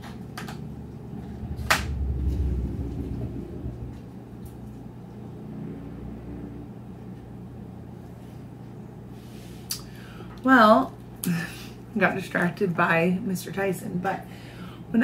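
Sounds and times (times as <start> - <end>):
low rumble and hum: 0.0 - 9.4.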